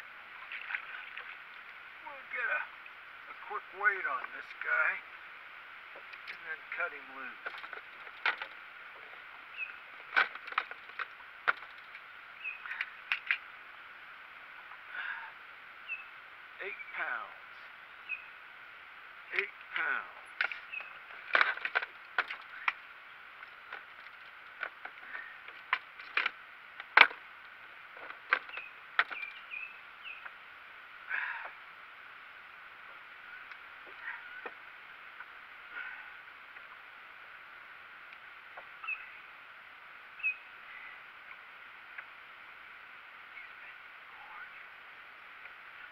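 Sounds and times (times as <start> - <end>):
knocks and clicks in a boat: 7.4 - 8.6, 10.0 - 12.0, 20.4 - 22.8, 23.6 - 27.2, 28.0 - 29.4.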